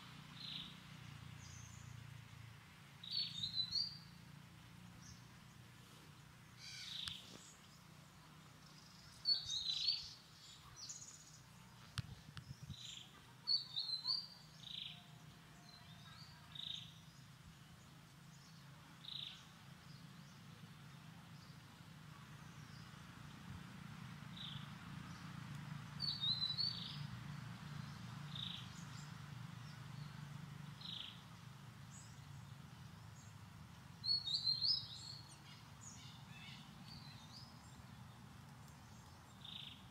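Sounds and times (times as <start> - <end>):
high chirping calls: 26.0 - 27.1, 34.0 - 37.8.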